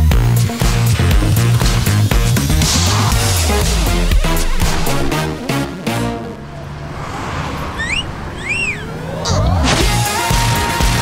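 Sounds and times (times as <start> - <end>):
background music: 0.0 - 6.9, 9.3 - 11.0
swish: 6.8 - 8.8
wolf whistle: 7.8 - 9.0.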